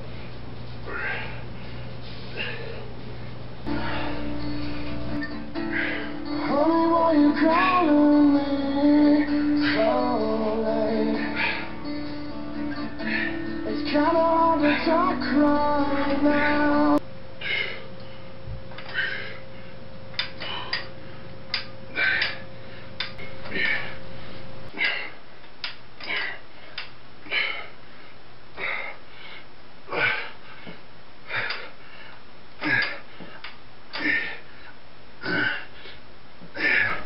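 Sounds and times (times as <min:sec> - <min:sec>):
man breathing hard: 0:00.0 - 0:02.9, 0:03.7 - 0:06.4, 0:11.0 - 0:13.6, 0:17.4 - 0:21.3, 0:21.9 - 0:25.3, 0:26.0 - 0:37.0.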